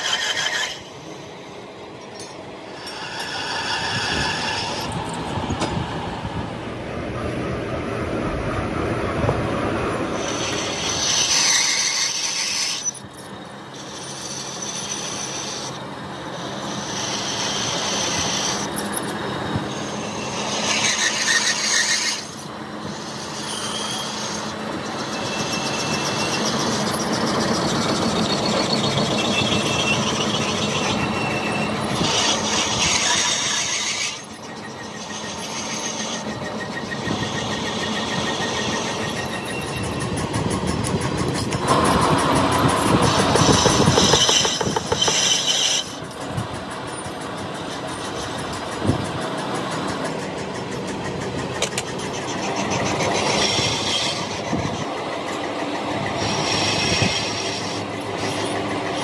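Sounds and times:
machine tools working steel: 0.0 - 59.0.

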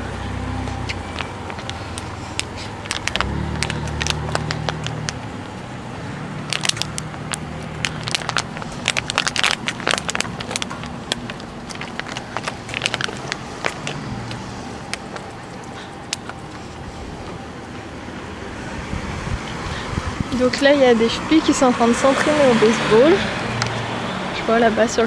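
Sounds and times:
cars passing engine hum: 0.0 - 25.0
crackling clicks and crunches: 0.6 - 5.6, 6.5 - 17.4.

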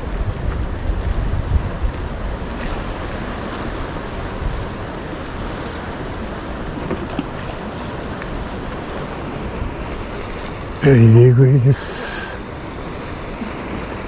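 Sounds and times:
wind rumbling on microphone: 0.0 - 10.8
sea water washing against breakwater: 0.0 - 14.0.

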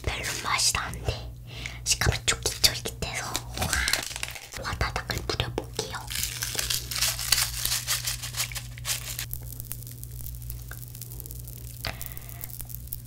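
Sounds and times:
popping candy crackling: 2.0 - 13.0.

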